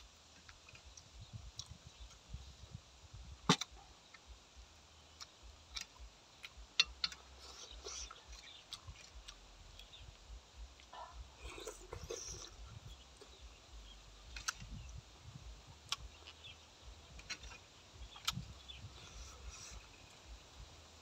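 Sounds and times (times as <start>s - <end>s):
wet chewing and lip-smacking: 5.1s - 14.9s, 15.6s - 20.4s.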